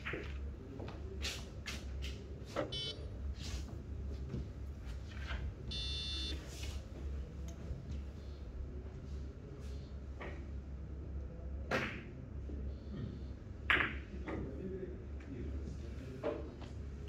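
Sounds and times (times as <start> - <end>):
short electronic beeps: 2.7 - 3.0, 5.7 - 6.4.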